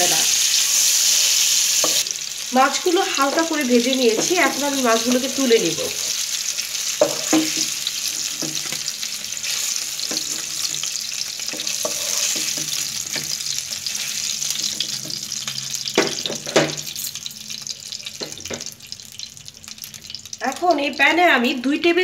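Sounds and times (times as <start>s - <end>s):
fish sizzling in oil: 0.0s - 21.6s.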